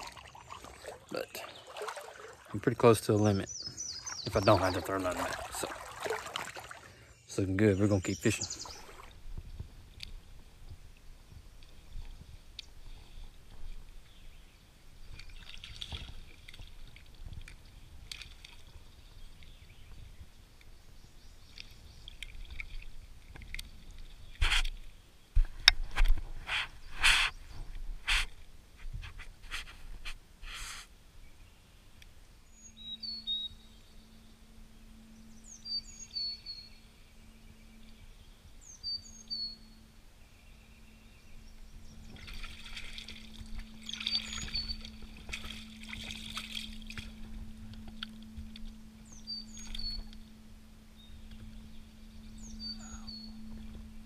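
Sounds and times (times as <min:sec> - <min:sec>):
water splashing around wader: 0:00.0 - 0:03.2, 0:04.0 - 0:07.1, 0:08.6 - 0:09.3, 0:14.9 - 0:19.6, 0:21.4 - 0:24.9, 0:41.8 - 0:50.3
small birds chirping: 0:00.0 - 0:05.7, 0:06.8 - 0:16.9, 0:18.6 - 0:25.4, 0:30.5 - 0:46.2, 0:48.2 - 0:54.0
steady low hum: 0:31.8 - 0:54.0.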